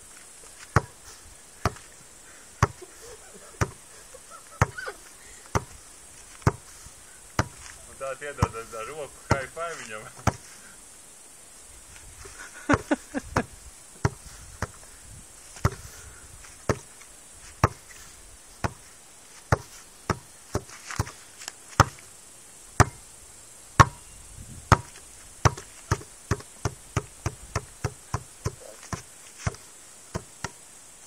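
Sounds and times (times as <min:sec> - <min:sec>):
basketball bouncing: 0:00.7 - 0:00.9, 0:02.6 - 0:02.8, 0:03.6 - 0:03.8, 0:05.5 - 0:05.7, 0:06.4 - 0:06.6, 0:07.4 - 0:07.7, 0:17.6 - 0:17.8, 0:22.8 - 0:23.0, 0:23.8 - 0:24.0, 0:24.7 - 0:29.6.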